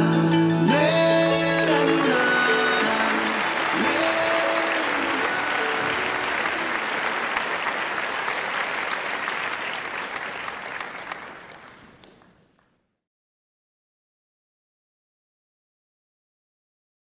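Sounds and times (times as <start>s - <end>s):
crowd applause: 1.4s - 12.7s.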